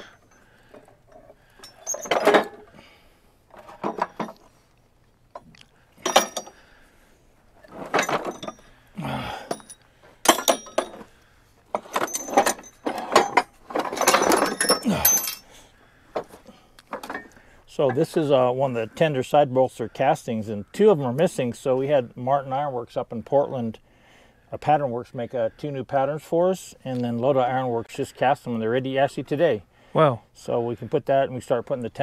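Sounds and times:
iron castings clanking and scraping: 0.0s - 4.6s, 5.4s - 6.8s, 7.6s - 15.6s, 16.2s - 18.5s.

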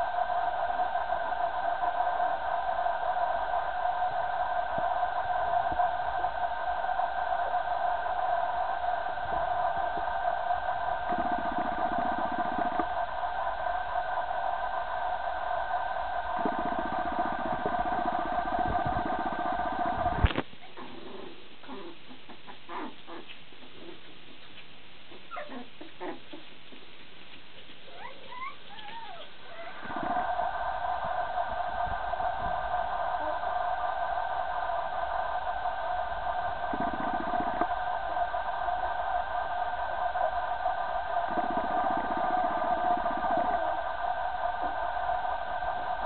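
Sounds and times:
high-toned hum: 0.0s - 20.4s, 28.9s - 46.0s
puppies squeaking and whimpering: 25.1s - 26.4s, 27.9s - 29.8s.

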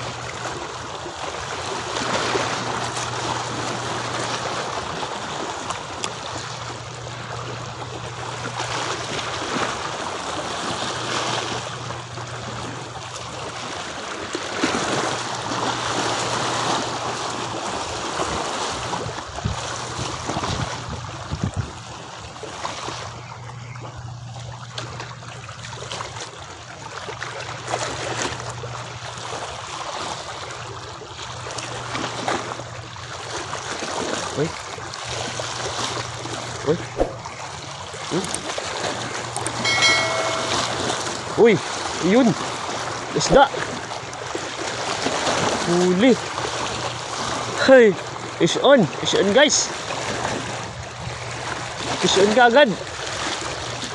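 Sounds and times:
water lapping against a pier: 0.0s - 53.9s
low steady hum: 34.6s - 41.4s.

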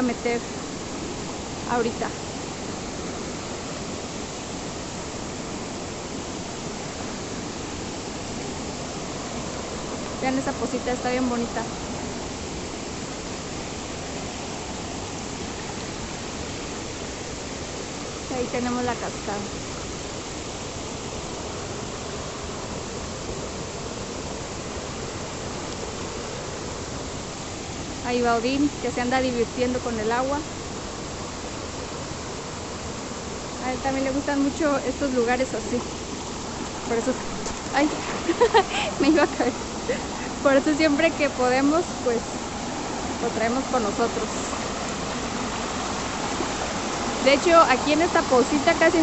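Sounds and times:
stream rushing over rocks: 0.0s - 49.0s.

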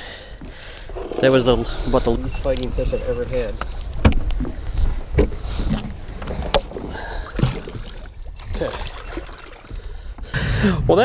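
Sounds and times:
water sloshing: 3.7s - 10.2s.

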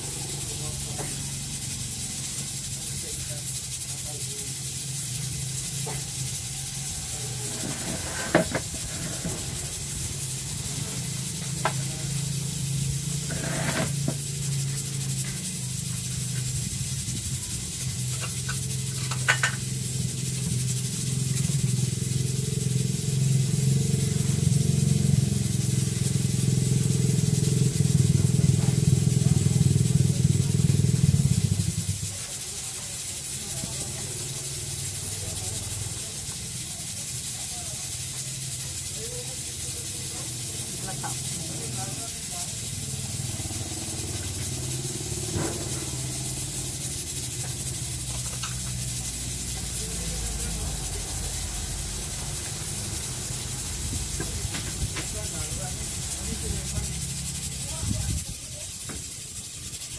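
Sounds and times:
low machine hum: 42.7s - 58.0s.

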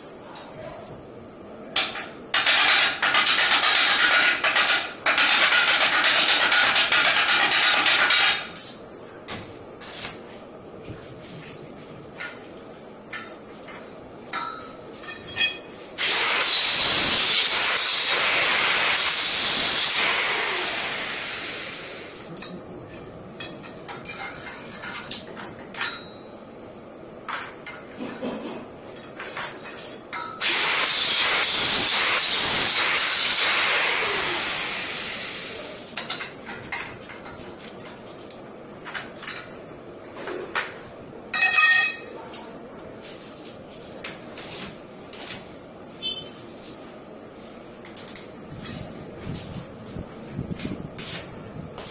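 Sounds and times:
metal pipes clinking: 8.5s - 9.0s, 13.1s - 15.8s, 23.4s - 26.4s, 27.6s - 30.5s, 41.3s - 42.1s
power tool running: 16.0s - 21.9s, 30.4s - 35.5s.

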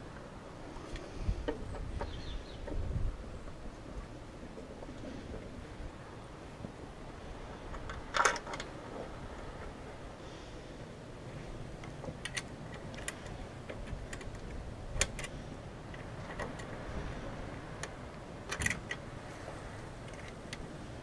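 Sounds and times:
wind rumble on microphone: 0.0s - 21.0s
sharp clicks and light knocks: 7.7s - 9.7s, 11.8s - 16.9s, 17.8s - 19.1s, 20.0s - 20.7s.

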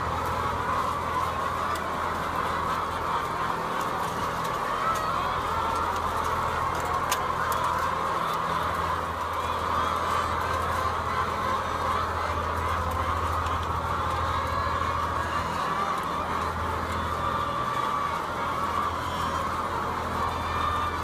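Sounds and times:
hens calling and clucking: 0.0s - 21.0s.

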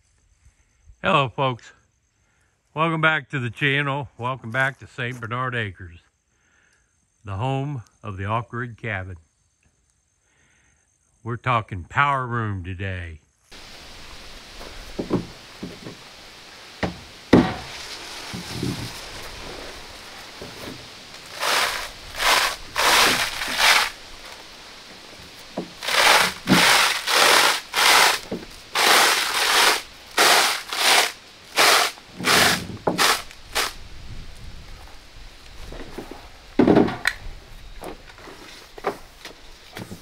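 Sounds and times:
sharp knocks: 14.9s - 16.0s, 16.8s - 18.9s
hand saw rasping strokes: 16.8s - 19.7s, 20.4s - 24.4s, 25.6s - 33.8s.

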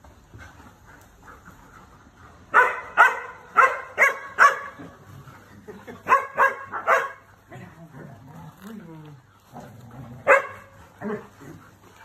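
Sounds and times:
dog barking: 2.5s - 4.8s, 6.1s - 7.2s, 10.2s - 11.2s.

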